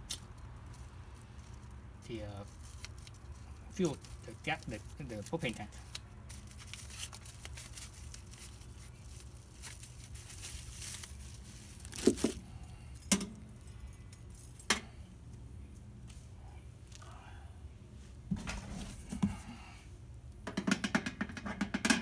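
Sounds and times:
plastic wrap crinkling and tearing: 0.1 - 12.4.

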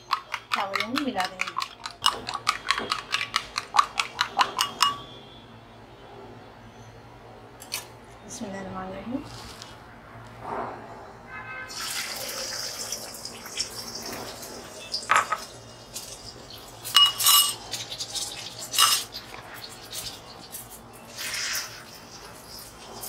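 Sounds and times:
eggs sizzling in hot oil: 17.6 - 23.0.

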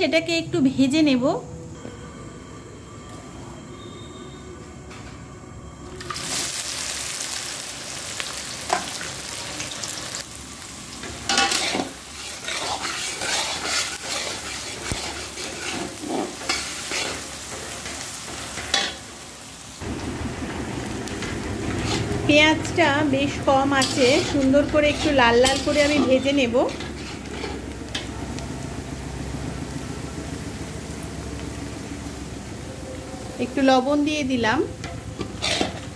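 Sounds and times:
onions sizzling in hot oil: 5.9 - 35.9
spatula scraping pan: 11.3 - 17.9, 21.6 - 22.2, 23.8 - 27.7, 35.2 - 35.9.

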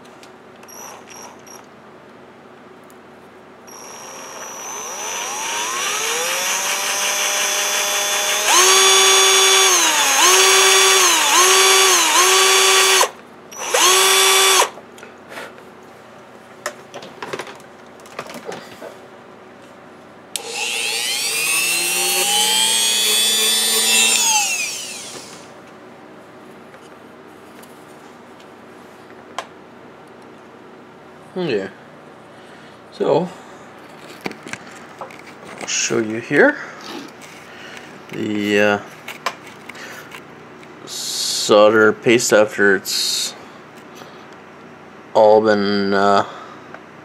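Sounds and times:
cordless drill whining: 0.7 - 1.4, 3.7 - 14.8, 20.4 - 25.5.

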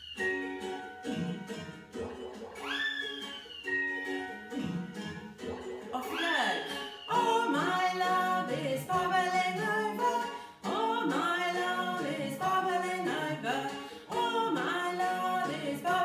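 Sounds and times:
woman singing: 6.0 - 16.0.

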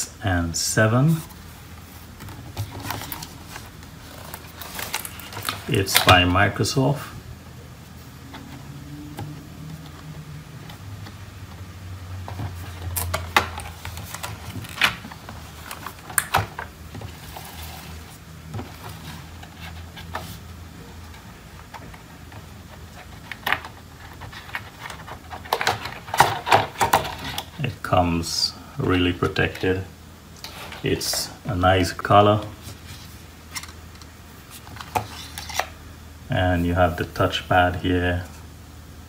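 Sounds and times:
low steady hum: 0.0 - 39.0
packaging rustle: 2.0 - 6.2, 12.3 - 20.5.

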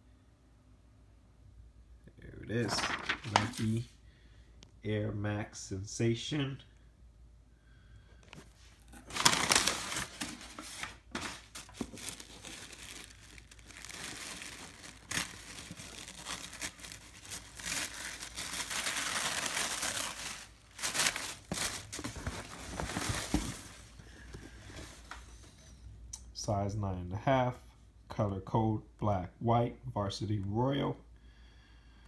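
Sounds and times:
packing paper crinkling: 2.5 - 3.8, 8.8 - 24.0.

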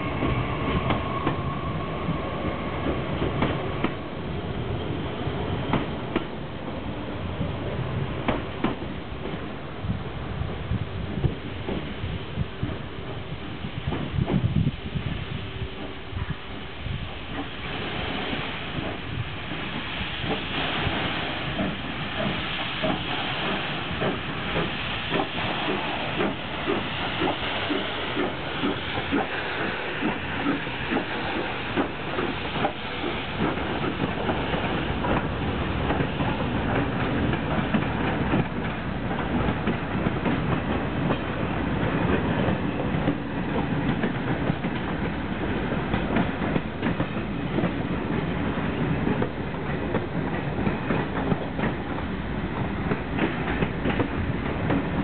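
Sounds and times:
steam locomotive hissing steam: 0.0 - 55.0
train coaches rolling on track: 0.0 - 55.0.

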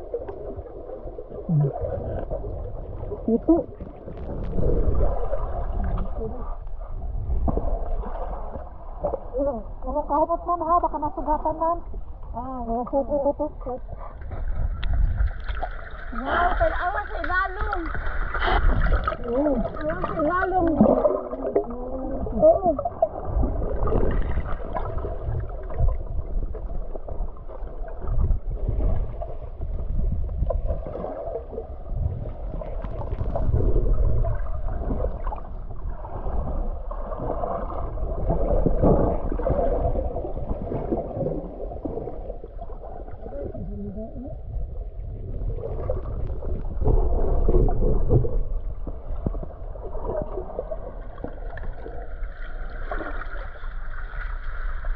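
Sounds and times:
muffled underwater gurgling: 0.0 - 7.9, 16.1 - 52.1.

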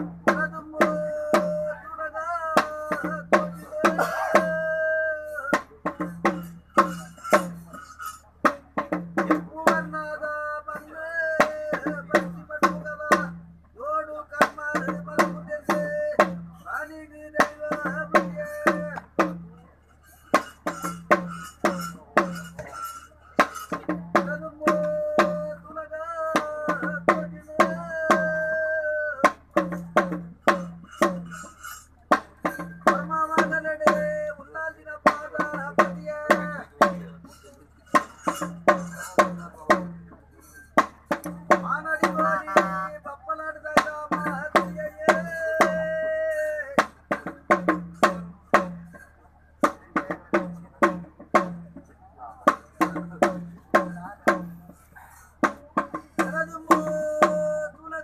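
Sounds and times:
man chanting: 0.0 - 7.9, 8.6 - 19.8, 23.5 - 31.4, 32.4 - 40.5, 41.1 - 49.0, 49.6 - 58.0
hand drum beaten in quick strokes: 2.6 - 10.0, 17.4 - 25.7, 29.2 - 43.1, 43.7 - 58.0.

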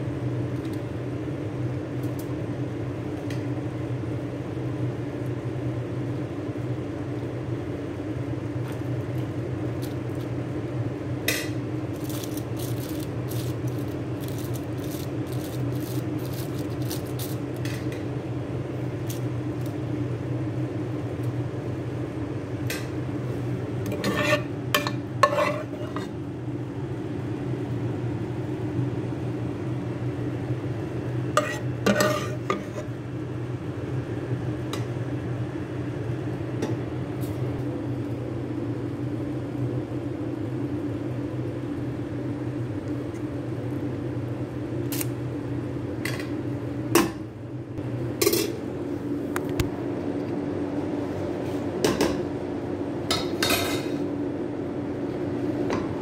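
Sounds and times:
steady hum: 0.0 - 56.0
metal spoon scraping steel pot: 23.9 - 26.1, 31.4 - 32.9.

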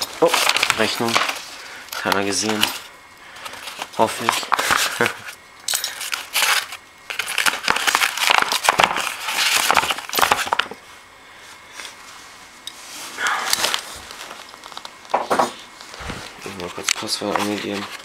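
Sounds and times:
packing tape crackling: 0.0 - 10.8, 13.4 - 15.2.

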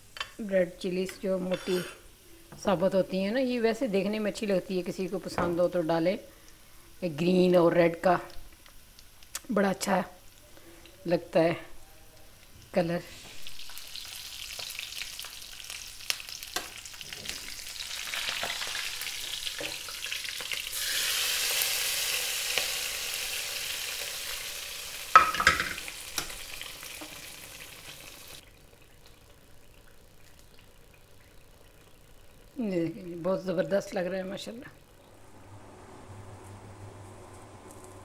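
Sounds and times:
spices sizzling in hot oil: 12.2 - 28.8.

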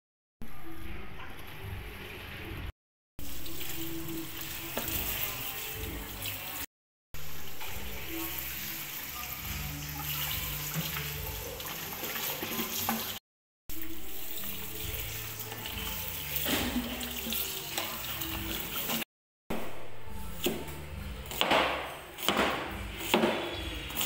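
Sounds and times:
background music: 0.8 - 6.6, 7.2 - 24.0
tap water running into sink: 10.0 - 13.2, 13.8 - 19.0.

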